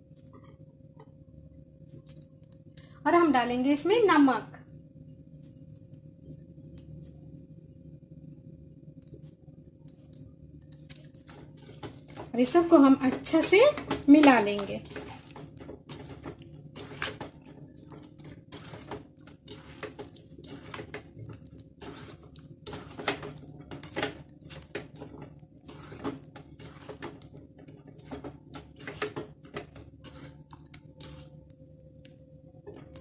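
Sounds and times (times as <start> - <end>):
faint steady hum: 0.0 - 33.0
wet squelches of hand mixing rice: 9.0 - 31.5.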